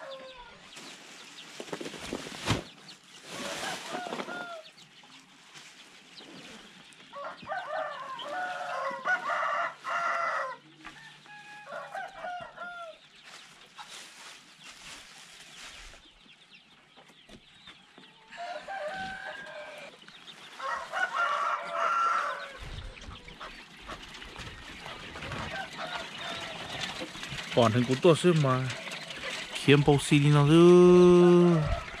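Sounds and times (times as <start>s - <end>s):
chicken calls: 0.0s - 32.0s
rooster crowing: 7.1s - 13.0s, 18.3s - 20.0s, 20.6s - 22.7s, 25.2s - 27.0s, 31.3s - 32.0s.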